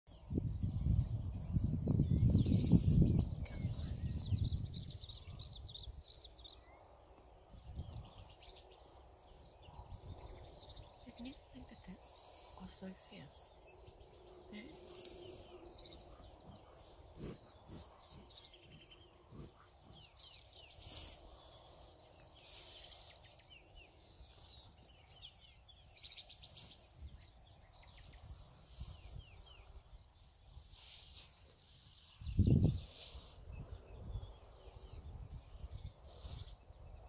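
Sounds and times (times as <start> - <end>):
small birds chirping: 0.1 - 37.0.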